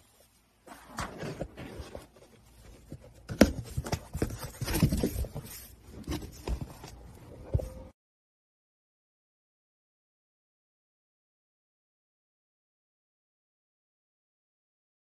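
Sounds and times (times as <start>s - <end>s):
cardboard box rustling and knocking: 0.8s - 7.9s.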